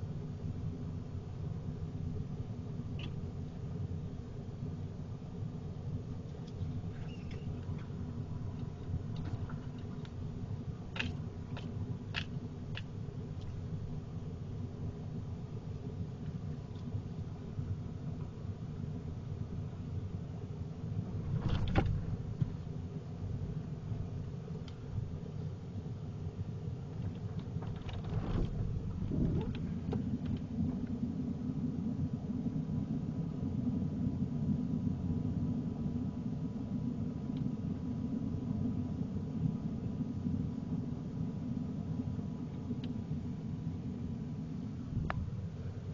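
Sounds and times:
truck rumbling on dirt track: 27.6 - 30.8.

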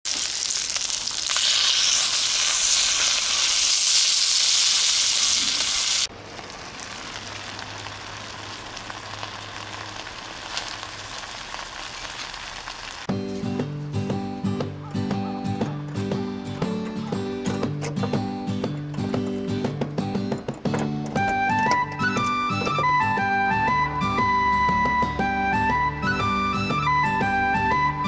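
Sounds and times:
chicken sizzling in oil: 0.1 - 13.1
steady hiss with faint crackles: 0.1 - 13.1.

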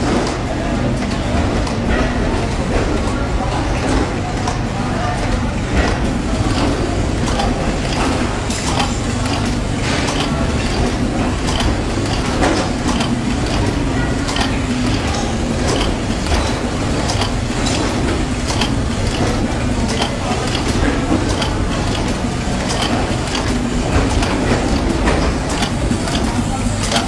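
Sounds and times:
machine clacks and clicks: 0.0 - 27.0.

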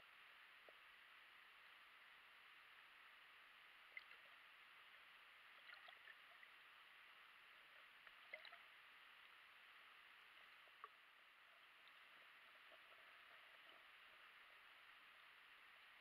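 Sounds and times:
faint steady hiss: 0.0 - 16.0
faint ticks: 0.6 - 1.0, 3.8 - 4.5, 10.2 - 16.0.

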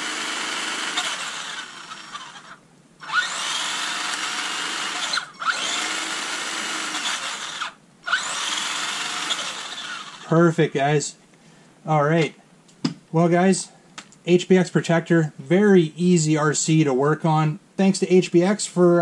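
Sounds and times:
electric motor whirring: 0.0 - 10.3.

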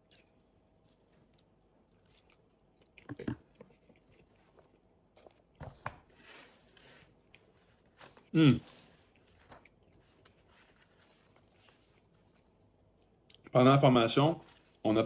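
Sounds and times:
faint chewing of food: 0.0 - 13.6
soft rustle: 6.2 - 12.7.

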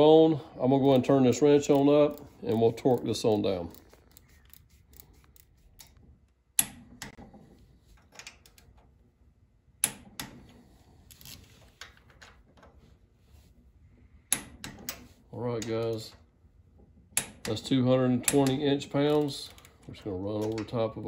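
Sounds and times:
torque wrench ratcheting: 0.8 - 6.0.

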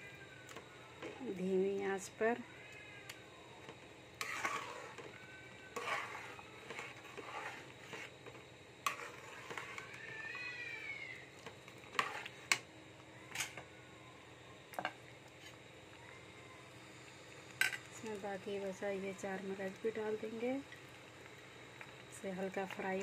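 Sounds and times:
ladle stirring in metal pan: 3.7 - 10.2, 11.4 - 12.6.

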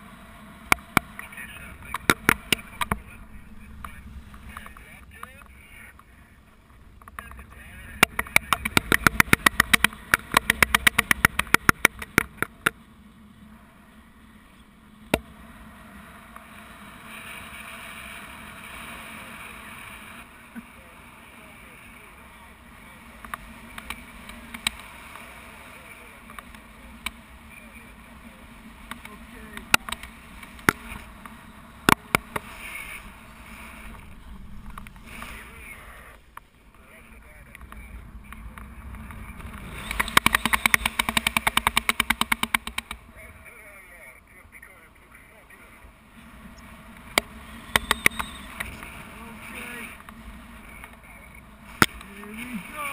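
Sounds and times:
wind rushing over camera: 0.0 - 14.3, 15.0 - 44.1
fast sharp clicks: 8.0 - 12.8, 23.2 - 24.9, 37.5 - 43.0.

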